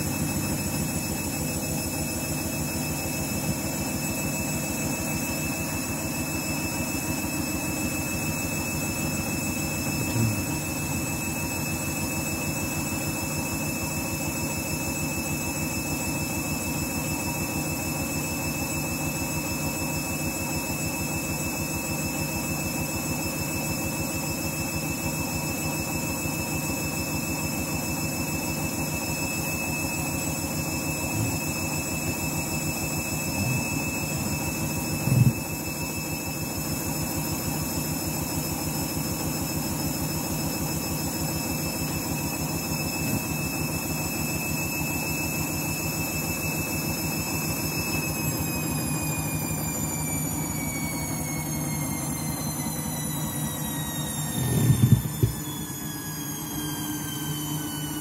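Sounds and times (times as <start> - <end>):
washing machine motor hum: 0.0 - 58.0
brief knock: 54.5 - 55.4.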